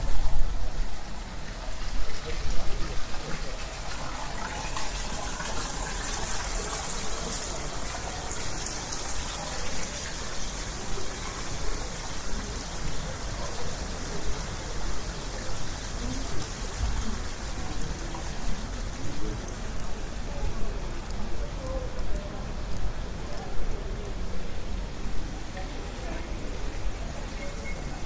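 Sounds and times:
fountain water splashing: 0.0s - 28.0s
murmur of voices: 0.0s - 28.0s.

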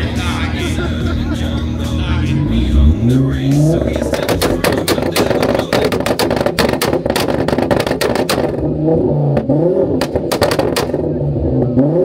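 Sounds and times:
car engine revving: 0.0s - 12.0s
exhaust pops and bangs: 3.7s - 11.2s.

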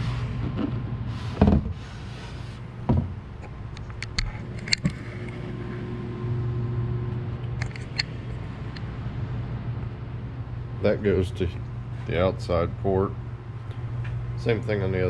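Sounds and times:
steady low hum: 0.0s - 15.0s
dull knocks on wood: 2.9s - 3.2s.

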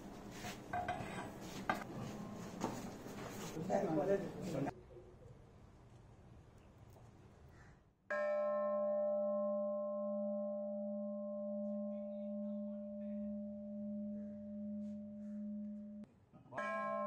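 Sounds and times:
bronze bell ringing: 8.1s - 16.0s, 16.6s - 17.0s.

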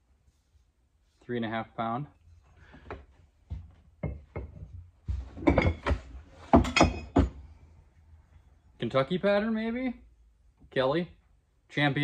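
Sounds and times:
axes knocking together: 5.4s - 7.4s.

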